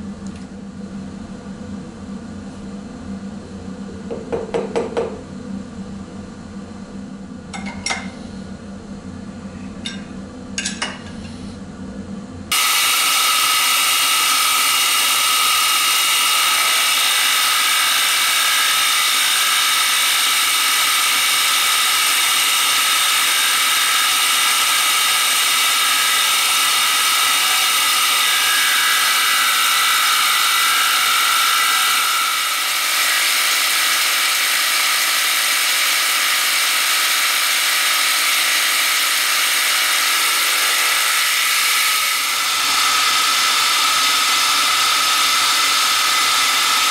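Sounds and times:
milling machine cutting steel: 0:12.5 - 0:46.9.

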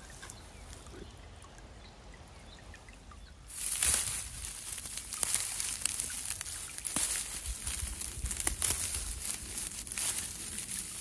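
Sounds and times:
dry fern fronds rustling: 0:03.5 - 0:11.0.

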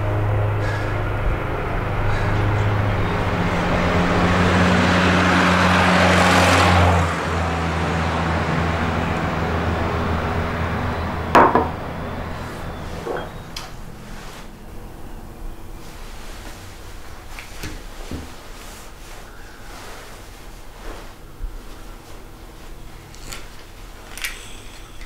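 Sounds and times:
steady low hum: 0:00.0 - 0:05.8, 0:07.3 - 0:25.0
car passing on road: 0:00.0 - 0:17.2
sharp knock: 0:11.4 - 0:11.8.

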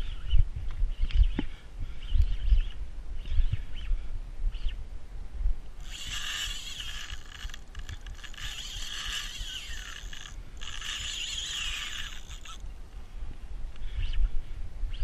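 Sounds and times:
fishing reel gears whirring: 0:05.8 - 0:12.6.

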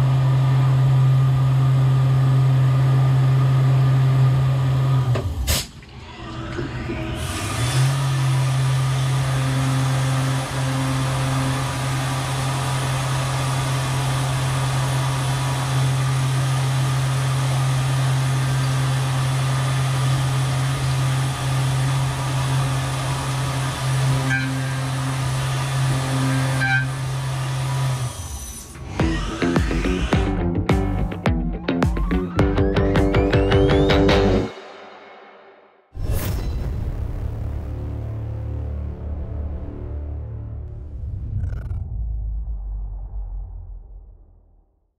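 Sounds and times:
metal cutting noise: 0:05.5 - 0:30.4.

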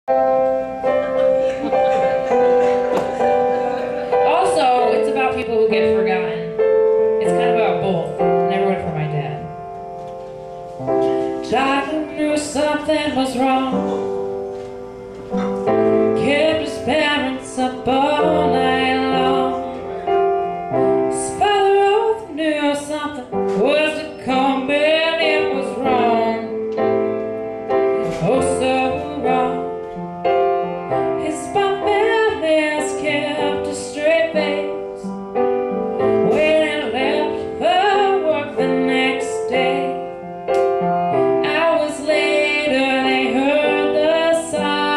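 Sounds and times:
upright piano: 0:00.0 - 0:44.9
woman singing a ballad: 0:11.4 - 0:14.2, 0:16.0 - 0:19.8, 0:20.8 - 0:26.9, 0:28.0 - 0:29.9, 0:30.9 - 0:35.2, 0:36.0 - 0:40.2, 0:41.4 - 0:44.9.

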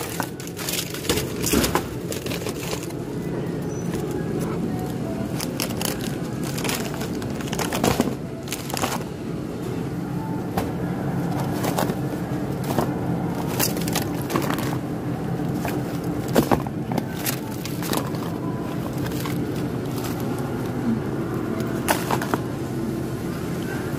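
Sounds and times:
plastic packaging crinkling: 0:00.0 - 0:03.1, 0:03.9 - 0:09.2, 0:11.2 - 0:20.8
steady low hum: 0:00.0 - 0:23.9.

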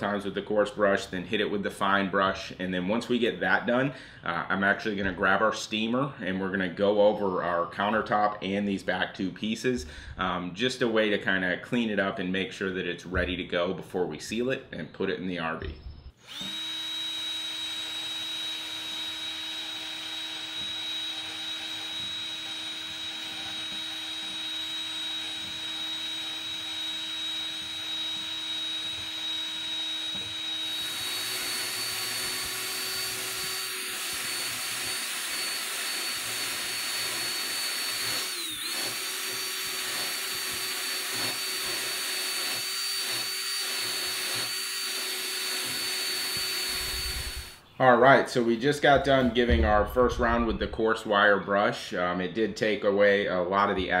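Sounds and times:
drill wire brush on wood: 0:16.2 - 0:47.6.

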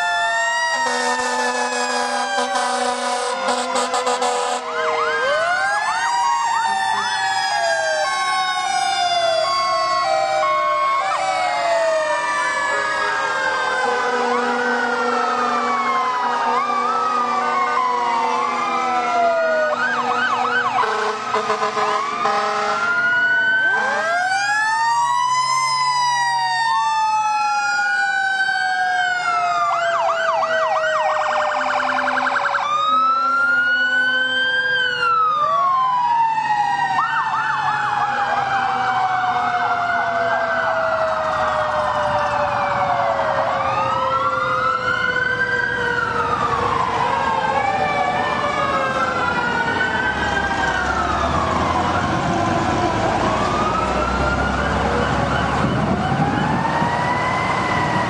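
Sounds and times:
fire truck sirens wailing: 0:00.0 - 0:58.0
air horn blasts: 0:00.8 - 0:04.7, 0:20.8 - 0:23.0.

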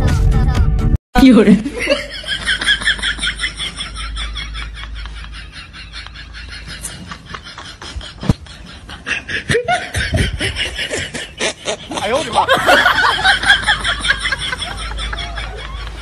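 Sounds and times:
person laughing: 0:01.5 - 0:16.0.

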